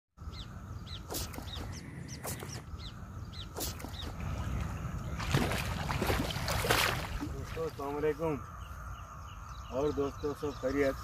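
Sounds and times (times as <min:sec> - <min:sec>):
bird chirping: 0:00.2 - 0:05.5, 0:06.8 - 0:11.0
fish splashing at surface: 0:04.2 - 0:07.6.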